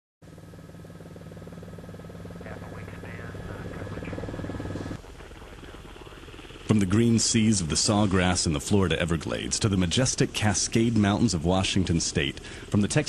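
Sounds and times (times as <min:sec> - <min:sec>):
helicopter engine hum: 0:00.3 - 0:13.0
helicopter rotor chop: 0:00.3 - 0:13.0.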